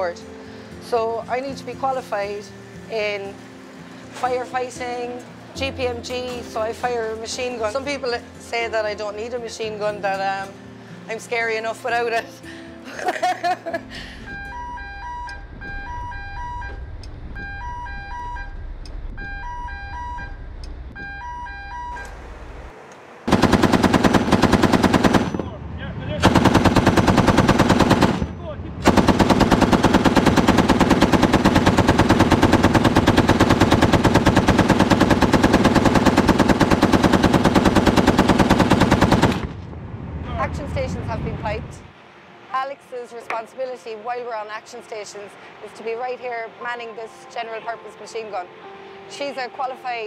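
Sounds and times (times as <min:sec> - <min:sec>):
electronic alarm two alternating tones: 0:14.2 - 0:22.1
machine gun automatic fire: 0:23.3 - 0:25.5, 0:26.2 - 0:39.6.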